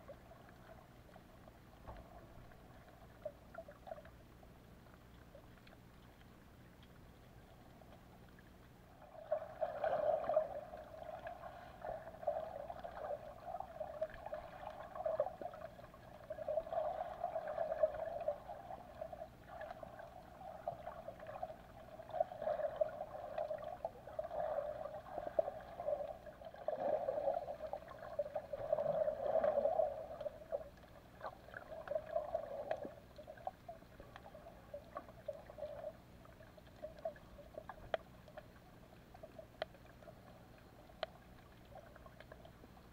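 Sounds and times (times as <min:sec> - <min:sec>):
muffled underwater water rush: 0:00.0 - 0:42.9
faint clicks: 0:00.1 - 0:08.9, 0:29.4 - 0:42.9.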